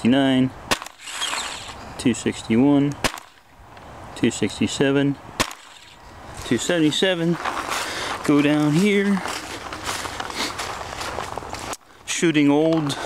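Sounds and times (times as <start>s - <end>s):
paintball marker firing: 0.7s - 1.8s, 3.0s - 3.4s, 5.4s - 6.0s
sharp crack: 0.7s - 1.8s, 2.9s - 3.5s, 5.4s - 6.0s.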